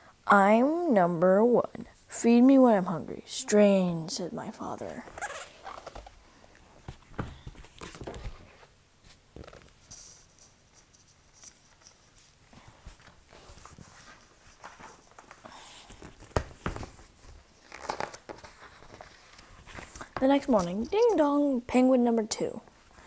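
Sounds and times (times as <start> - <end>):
rustling and handling noise: 4.4 - 21.6.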